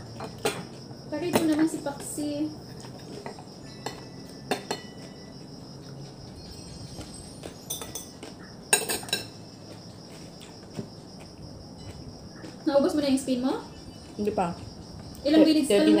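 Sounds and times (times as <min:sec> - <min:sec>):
crickets chirping: 0:00.0 - 0:16.0
cutlery clinking against a dish: 0:02.8 - 0:05.3, 0:07.4 - 0:09.4.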